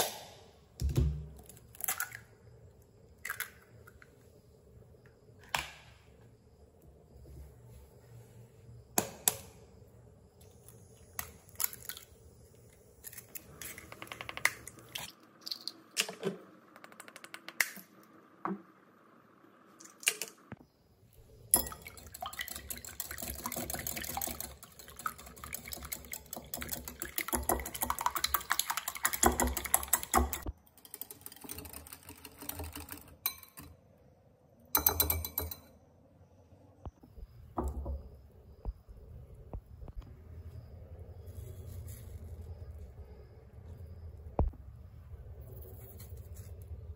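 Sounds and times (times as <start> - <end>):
whisk beating eggs in glass bowl: 21.6 - 33.3.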